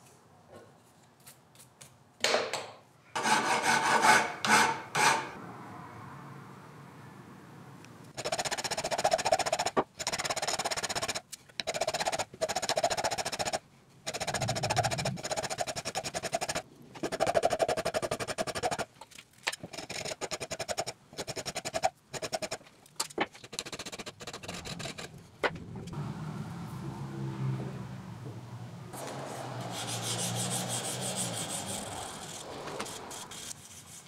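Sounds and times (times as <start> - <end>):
hand file rasping on steel: 3.2 - 5.4, 29.6 - 34.0.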